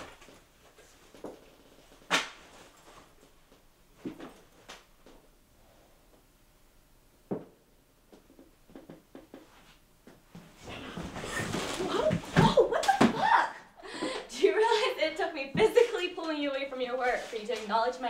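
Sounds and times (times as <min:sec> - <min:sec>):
knocks and thuds of handling things: 0:07.3 - 0:13.2.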